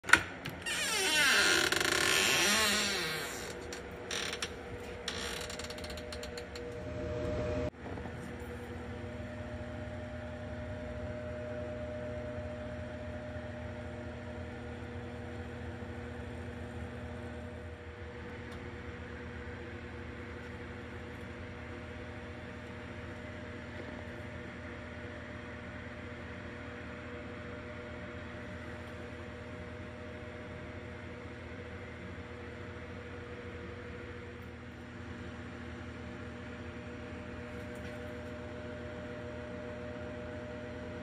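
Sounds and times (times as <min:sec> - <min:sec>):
electrical hum: 0:00.0 - 0:41.0.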